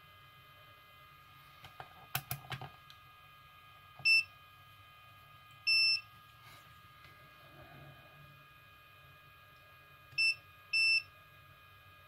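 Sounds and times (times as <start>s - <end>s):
multimeter beeps: 4.0s - 4.3s, 5.6s - 6.1s, 10.2s - 11.1s.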